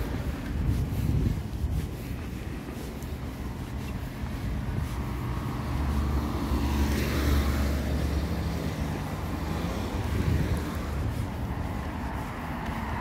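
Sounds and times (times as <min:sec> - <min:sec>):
car passing by: 0:03.6 - 0:13.0.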